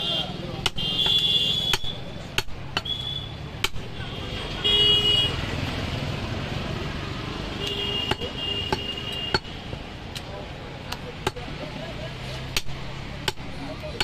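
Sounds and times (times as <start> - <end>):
vehicle horns tooting: 0.0 - 2.1, 2.8 - 3.4, 4.0 - 5.4, 7.5 - 9.6
traffic rumble: 0.0 - 14.0
cleaver striking chopping block: 0.6 - 3.0, 3.6 - 4.0, 8.0 - 10.3, 12.5 - 14.0.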